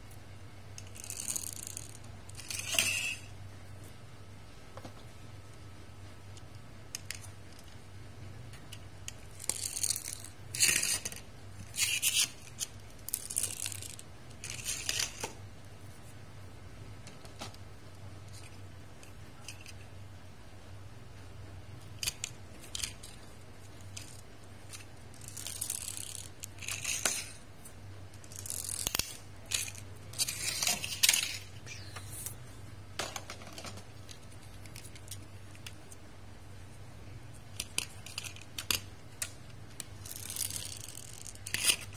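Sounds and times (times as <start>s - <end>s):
toy car wheels whirring: 0.8s - 3.3s, 9.4s - 15.2s, 24.0s - 27.4s, 28.2s - 31.9s, 39.9s - 41.9s.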